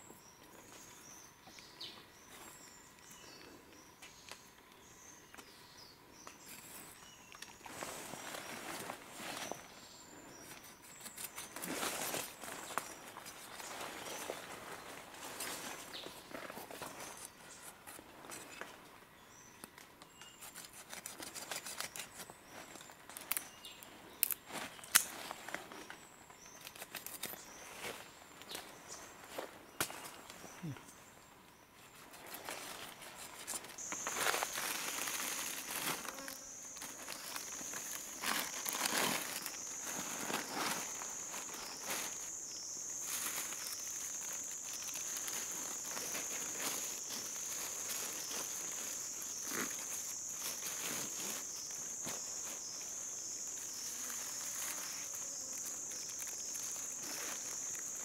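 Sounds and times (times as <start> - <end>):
birds chirping: 21.7 - 58.0.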